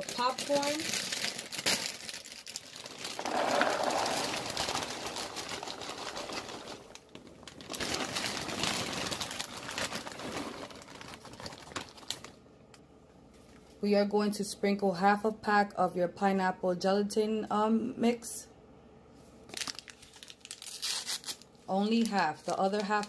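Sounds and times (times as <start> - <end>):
popcorn pouring into container: 0.0 - 12.3
plastic bags crinkling: 0.0 - 12.4, 19.5 - 23.0.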